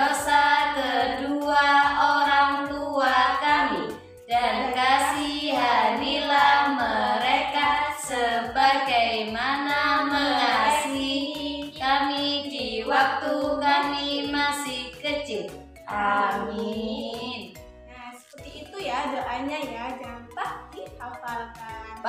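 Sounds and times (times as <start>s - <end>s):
women singing in unison: 0.0s - 15.0s
backing music with beat: 0.0s - 22.0s.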